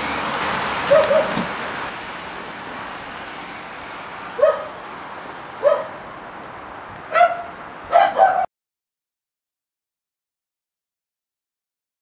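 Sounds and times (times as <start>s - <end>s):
outdoor background noise: 0.0s - 8.5s
dog barking: 0.9s - 1.4s, 4.4s - 4.8s, 5.6s - 6.0s, 7.1s - 8.5s.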